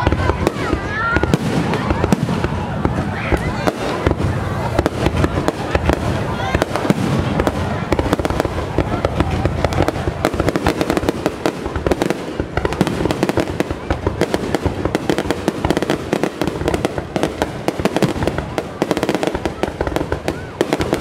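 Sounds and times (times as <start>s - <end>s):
fireworks crackling and banging: 0.0s - 21.0s.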